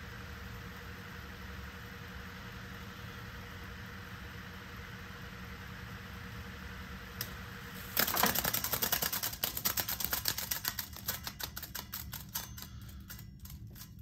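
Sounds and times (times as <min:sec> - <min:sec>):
tape tail slapping spinning reel: 0:07.2 - 0:14.0.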